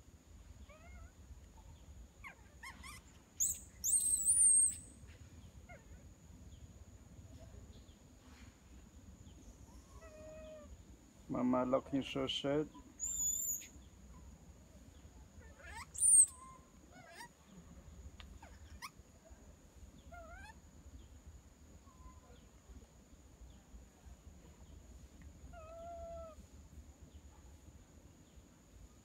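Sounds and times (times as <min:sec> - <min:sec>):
high-pitched animal squeaks and chirps: 0:02.2 - 0:04.9, 0:13.0 - 0:13.7, 0:15.4 - 0:17.3, 0:18.4 - 0:19.0.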